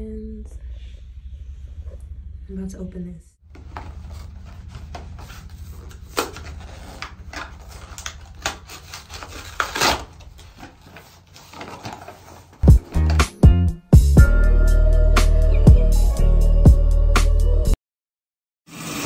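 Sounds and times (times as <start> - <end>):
packaging rustling and clicking: 3.5 - 13.3
loud music: 12.6 - 17.8.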